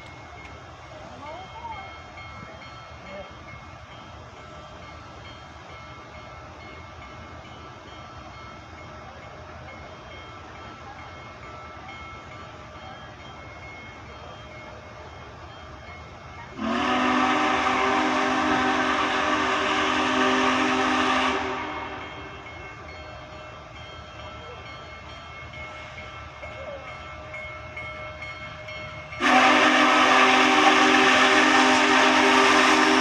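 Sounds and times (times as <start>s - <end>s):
steam whistle blast: 16.6s - 22.3s, 29.2s - 33.0s.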